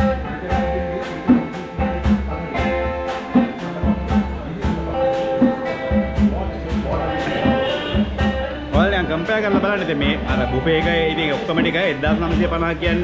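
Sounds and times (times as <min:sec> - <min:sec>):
live band music with guitar: 0:00.0 - 0:13.0.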